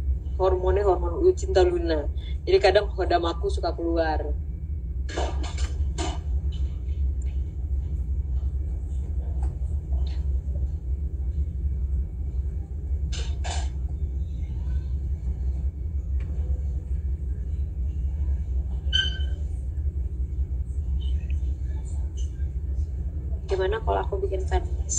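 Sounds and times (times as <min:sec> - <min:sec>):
steady low rumble: 0:00.0 - 0:24.9.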